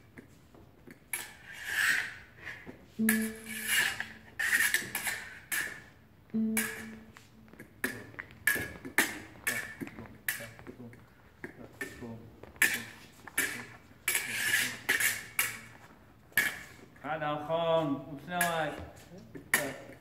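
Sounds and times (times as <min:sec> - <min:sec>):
fencing blades clicking and scraping: 0:00.8 - 0:02.6, 0:03.4 - 0:06.0, 0:07.8 - 0:10.6, 0:12.6 - 0:16.9.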